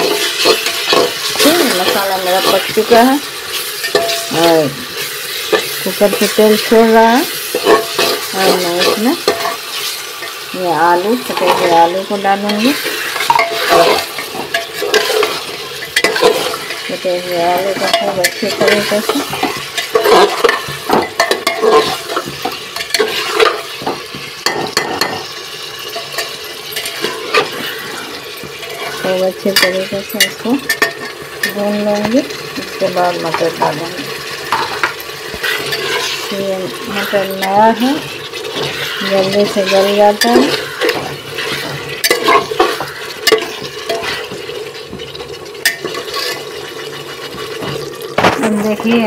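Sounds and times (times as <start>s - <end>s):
ladle scraping pot: 0.0s - 49.0s
oil sizzling: 0.0s - 49.0s
ladle clinking against pot: 3.6s - 4.4s, 7.5s - 10.4s, 13.0s - 16.9s, 17.8s - 25.3s, 29.5s - 31.6s.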